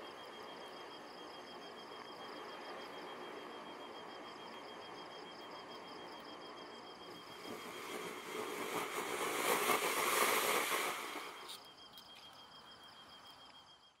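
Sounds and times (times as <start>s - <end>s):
firework fountain hissing and crackling: 7.3s - 11.6s.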